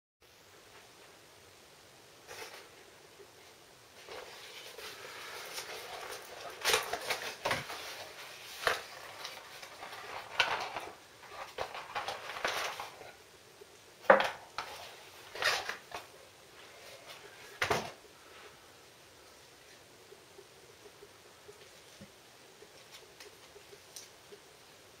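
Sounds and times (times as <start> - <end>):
cardboard rustling: 4.0 - 13.2, 14.1 - 18.0.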